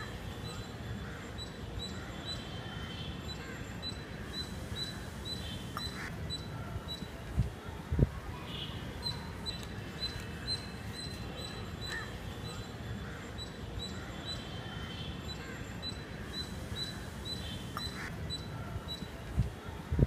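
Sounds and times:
small bird calling: 8.6s - 19.3s.

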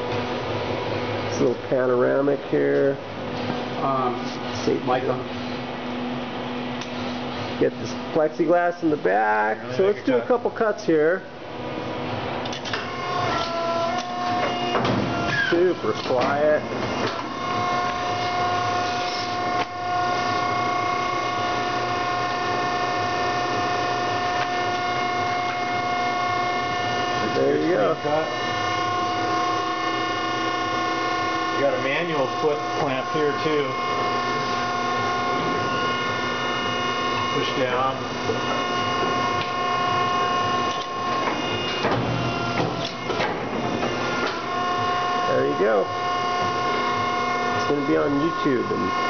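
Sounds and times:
paper cutter motor whine: 12.6s - 49.0s.

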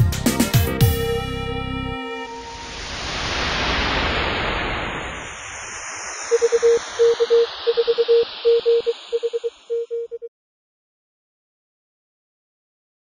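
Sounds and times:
whoosh: 2.5s - 9.8s
morse code beeps: 6.3s - 10.3s.

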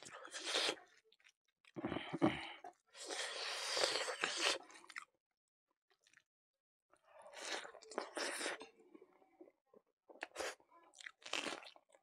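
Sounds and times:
person chewing food: 6.0s - 6.2s, 10.1s - 11.9s.

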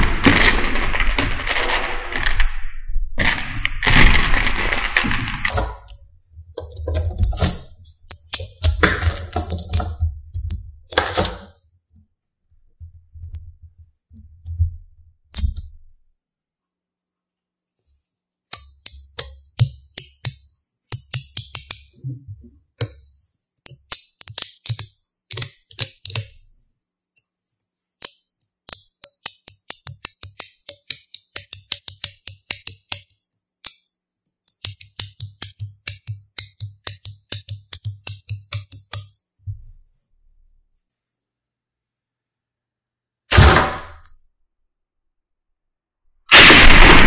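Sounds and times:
magnetic balls clicking together: 23.6s - 26.4s, 28.0s - 39.1s.

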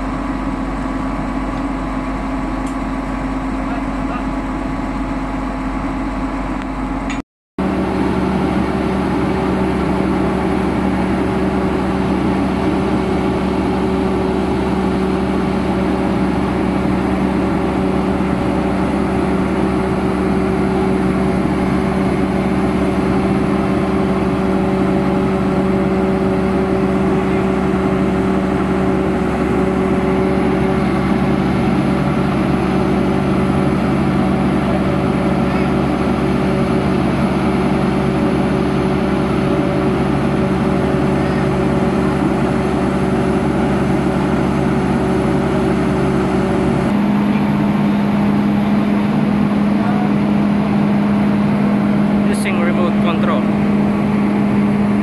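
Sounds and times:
heavy diesel engine droning: 0.0s - 55.0s.

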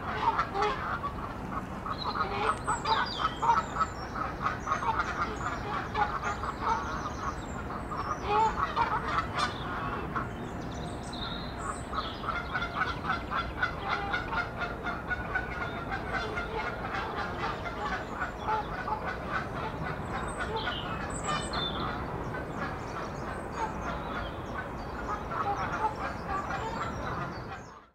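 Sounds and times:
birds honking: 0.0s - 27.9s
small birds chirping: 1.9s - 14.0s.

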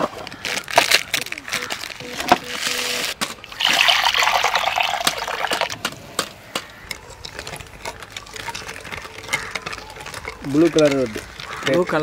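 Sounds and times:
liquid pouring into cups: 3.5s - 5.8s.

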